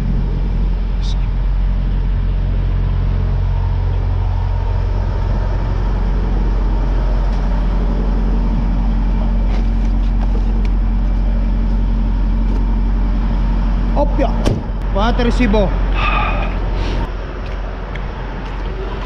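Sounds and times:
diesel truck engine idling: 0.0s - 19.0s.

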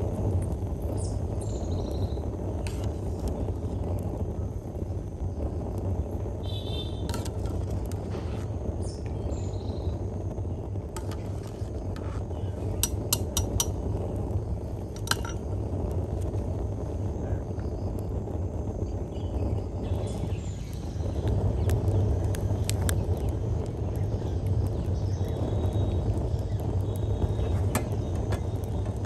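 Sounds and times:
steady low rumble: 0.0s - 29.0s
metal utensils and pots clinking: 15.0s - 15.4s.

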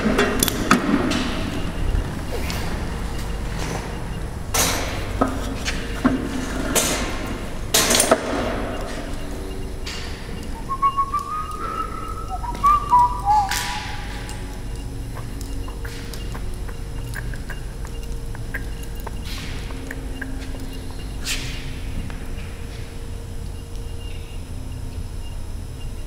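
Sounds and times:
thin whistle-like tones: 8.8s - 16.8s.

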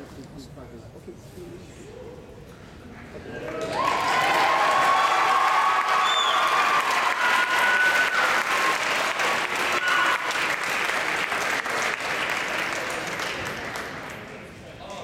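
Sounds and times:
audience applauding: 3.4s - 14.4s
whistles and shouts: 5.9s - 8.4s.

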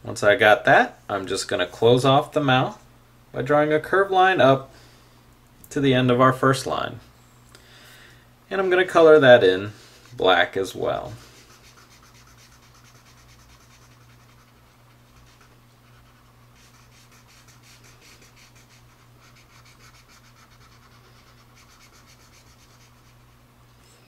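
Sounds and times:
faint steady hum: 0.0s - 24.0s
marker scratching on paper: 11.2s - 23.3s.

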